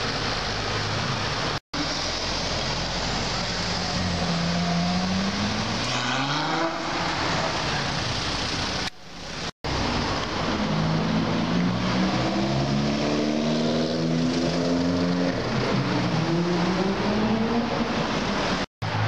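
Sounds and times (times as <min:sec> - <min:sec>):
street traffic noise: 0:00.0 - 0:19.0
car engine accelerating past: 0:10.7 - 0:17.8.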